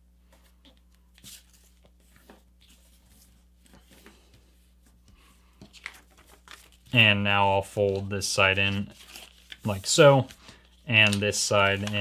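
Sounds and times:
faint steady hum: 0.0s - 12.0s
paper being folded and creased: 5.6s - 7.0s, 7.8s - 12.0s.

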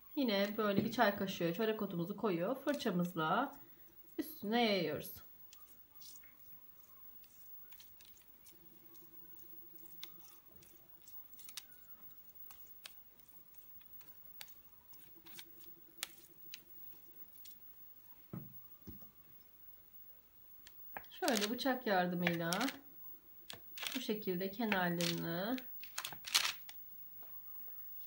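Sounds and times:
faint low hum: 0.0s - 28.0s
brush squishing on dough: 0.3s - 18.4s
soft thump: 18.3s - 19.1s.

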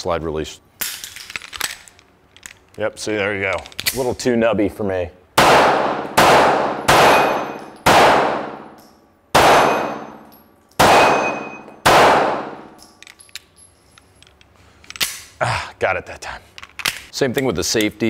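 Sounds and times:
pistol shots with reverberation: 5.4s - 10.2s, 10.8s - 12.7s.

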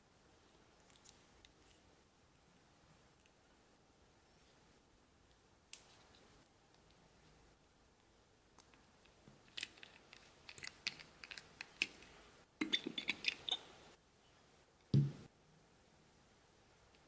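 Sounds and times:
dull knock: 15.0s - 15.2s.

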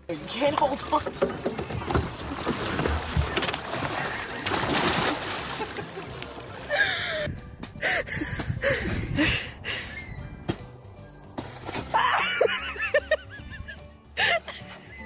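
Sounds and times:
water splashing and sloshing: 0.0s - 7.8s.

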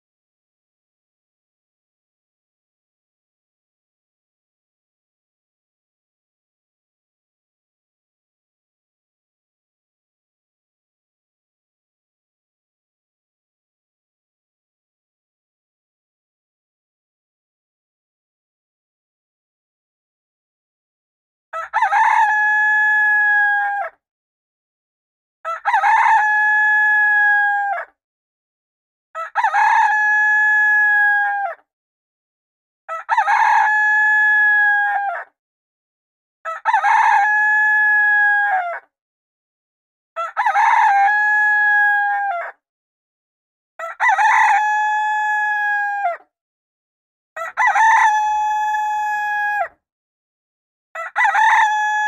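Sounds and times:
rooster crowing: 21.6s - 24.0s, 25.5s - 27.9s, 29.2s - 31.6s, 32.9s - 35.3s, 36.5s - 38.9s, 40.2s - 42.6s, 43.8s - 46.2s, 47.4s - 49.8s, 51.0s - 52.0s.

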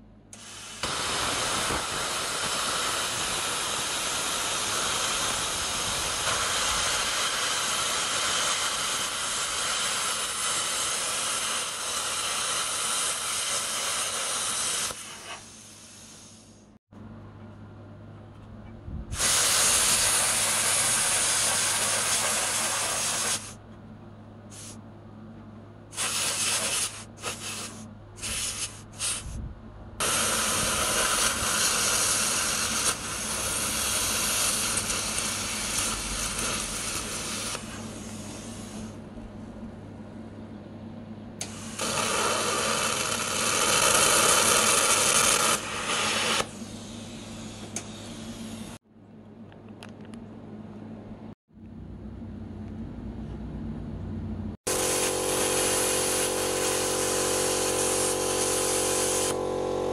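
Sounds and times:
plasma cutter hissing: 0.3s - 16.8s, 19.2s - 23.6s, 24.5s - 24.8s, 25.9s - 29.3s, 30.0s - 39.0s, 41.4s - 48.8s, 54.7s - 59.6s
steady low hum: 14.9s - 26.0s, 26.6s - 42.2s, 46.5s - 59.9s.

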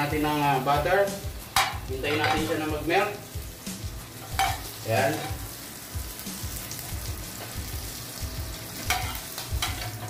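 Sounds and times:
butter sizzling in a frying pan: 0.0s - 10.0s.

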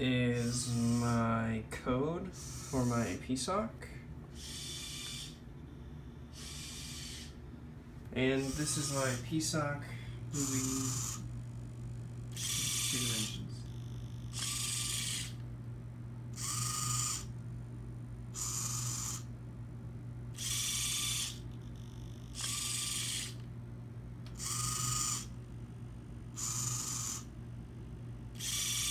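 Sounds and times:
steady low hum: 0.0s - 28.9s
servo motors whirring: 0.4s - 1.2s, 2.4s - 3.2s, 4.3s - 5.4s, 6.3s - 7.4s, 8.4s - 9.3s, 10.4s - 11.3s, 12.3s - 15.4s, 16.4s - 17.3s, 18.4s - 19.3s, 20.4s - 23.5s, 24.3s - 25.4s, 26.4s - 27.3s, 28.4s - 28.9s.

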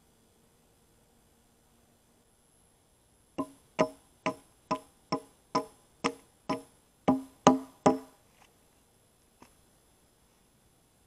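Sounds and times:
hammer knocking on log: 3.4s - 8.2s.

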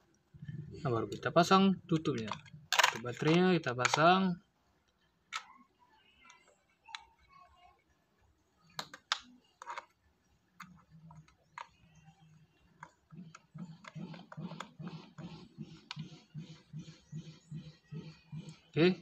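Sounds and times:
plastic clicks and taps: 8.7s - 9.9s.

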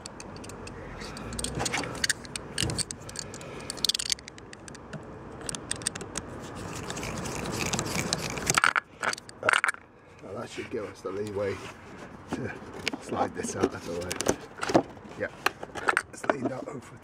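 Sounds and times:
screwdriver ticking and scraping: 0.0s - 9.8s.

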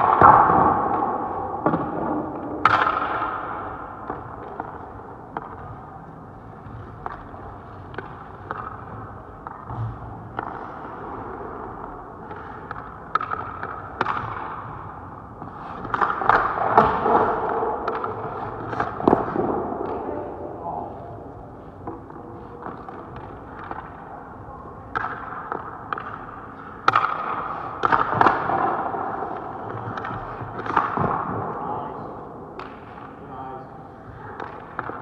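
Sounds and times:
pads and stick knocking on ice: 15.4s - 20.0s.

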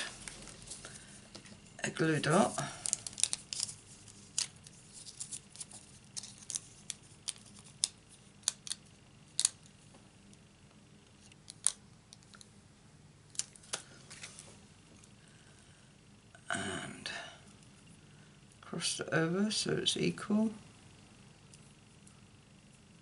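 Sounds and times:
paper and plastic crackling: 2.4s - 8.8s.

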